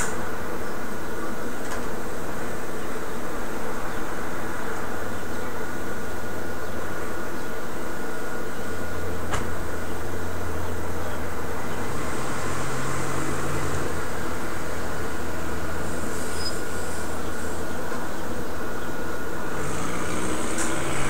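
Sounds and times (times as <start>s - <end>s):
steady hum and hiss: 0.0s - 21.0s
car driving slowly: 8.6s - 18.2s.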